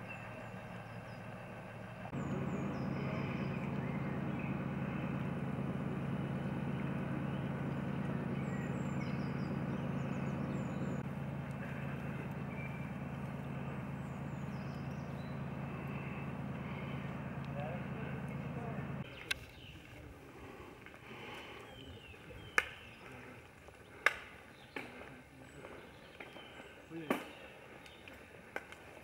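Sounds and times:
steady low drone: 0:00.0 - 0:19.4
small birds chirping: 0:00.0 - 0:20.5, 0:21.1 - 0:28.4.

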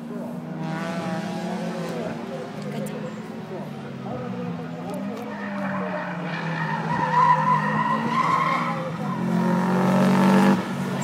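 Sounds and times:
racing car engines passing: 0:00.0 - 0:11.0
tyres squealing: 0:05.0 - 0:09.4.

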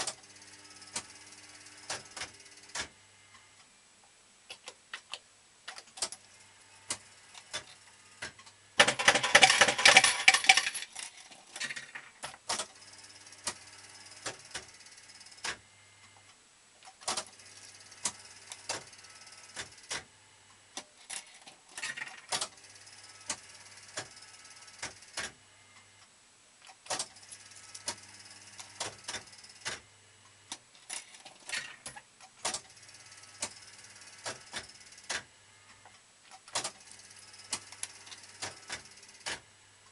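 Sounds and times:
coins clattering: 0:08.8 - 0:12.2.

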